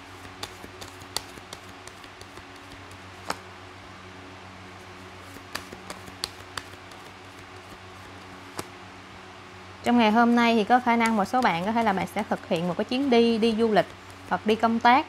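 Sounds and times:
cards tapping and clicking: 0.1 - 3.4, 5.2 - 8.7, 10.8 - 14.3.

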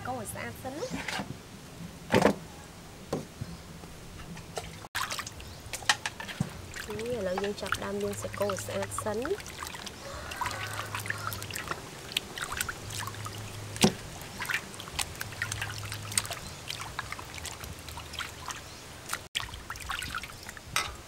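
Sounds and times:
water sloshing and splashing in basin: 4.4 - 21.0.

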